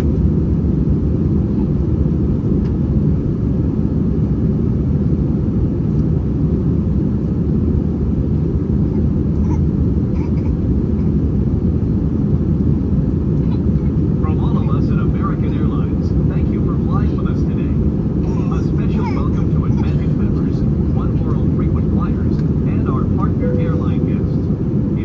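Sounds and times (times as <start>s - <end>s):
airliner cabin rumble: 0.0s - 25.0s.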